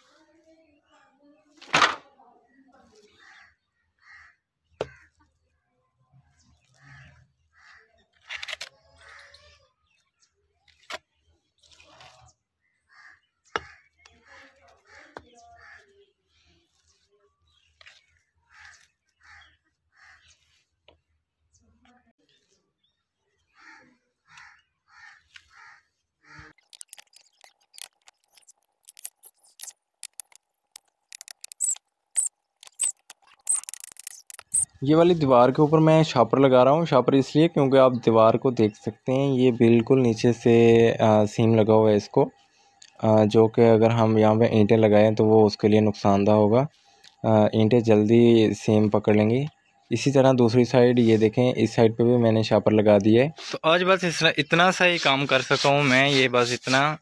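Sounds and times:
birds calling: 2.5 - 5.4, 6.3 - 57.0
soft rustling scrapes: 15.8 - 19.0
trowel scraping on bricks: 26.5 - 34.7.

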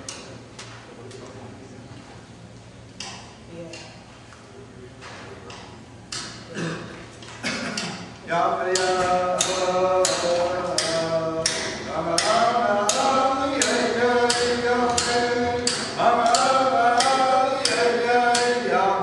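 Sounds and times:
group singing: 8.2 - 19.0
frame drum beating: 8.7 - 19.0.

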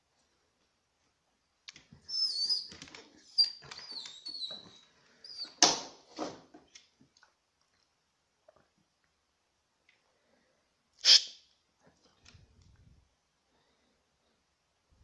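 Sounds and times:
high-pitched squeaks: 2.1 - 5.6.

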